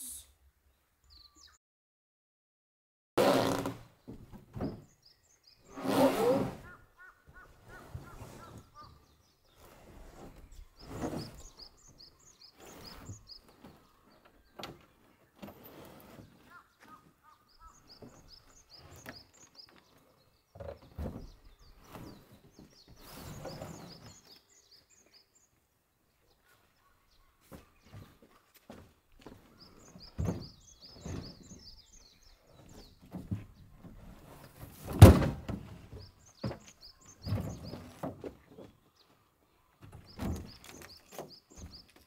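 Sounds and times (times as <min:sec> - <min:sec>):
small birds chirping: 0:00.0 - 0:01.6, 0:04.0 - 0:34.6, 0:35.7 - 0:42.0
thumps and rustles: 0:03.6 - 0:05.0, 0:20.6 - 0:24.3, 0:27.5 - 0:31.7, 0:32.6 - 0:38.8, 0:39.8 - 0:42.0.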